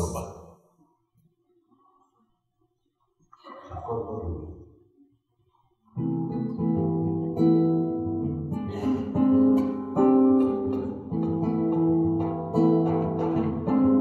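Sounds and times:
classical guitar plucking: 5.9 - 14.0.

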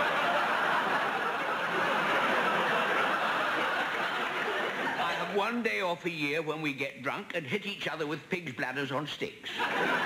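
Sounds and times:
audience laughing: 0.0 - 5.5, 9.4 - 10.0.

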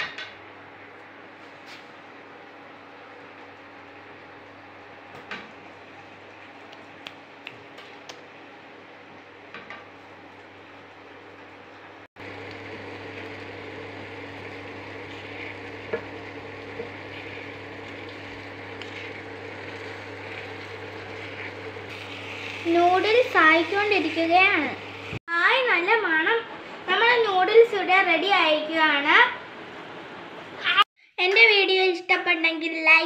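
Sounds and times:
noodles sizzling in frying pan: 12.2 - 25.2.

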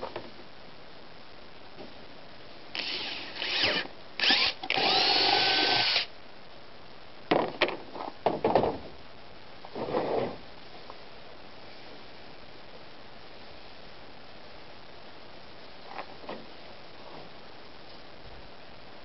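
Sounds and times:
cordless drill boring through plastic: 2.8 - 6.1.

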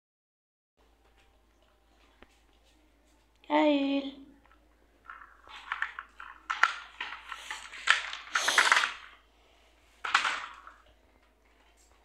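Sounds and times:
plastic toy truck rattling: 5.0 - 9.2, 10.0 - 10.9.

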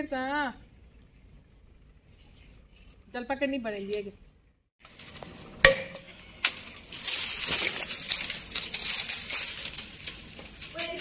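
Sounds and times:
twigs snapping: 4.9 - 11.0
broken pieces falling: 5.1 - 10.8.

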